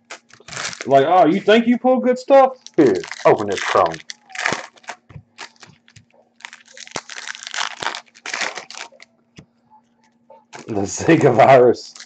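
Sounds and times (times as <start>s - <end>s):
foil wrapper tearing and crinkling: 0.0s - 1.4s, 2.6s - 9.1s, 10.5s - 12.0s.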